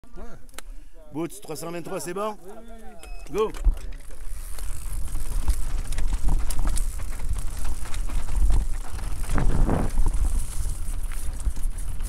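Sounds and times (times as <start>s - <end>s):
bike frame and chain rattling: 3.3s - 12.0s.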